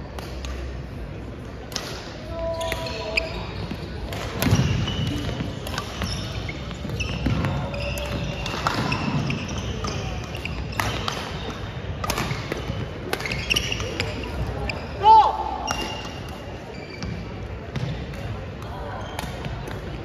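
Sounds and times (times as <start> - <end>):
voices in a hall: 0.0 - 20.0
rackets hitting shuttlecock: 1.7 - 14.4
sneakers squeaking on wooden floor: 2.4 - 11.6, 12.2 - 15.0, 15.7 - 18.0.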